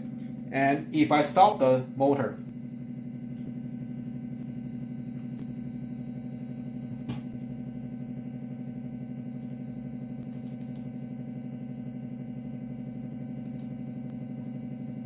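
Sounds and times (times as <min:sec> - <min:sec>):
stepper motor hum: 0:00.0 - 0:15.0.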